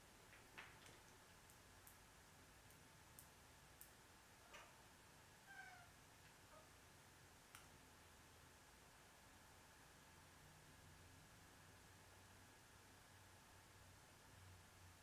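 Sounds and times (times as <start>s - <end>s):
cat calling: 5.5s - 5.9s.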